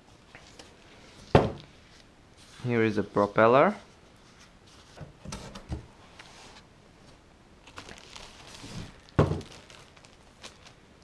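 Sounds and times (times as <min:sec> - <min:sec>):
plastic wrapping rustling: 0:07.6 - 0:11.0.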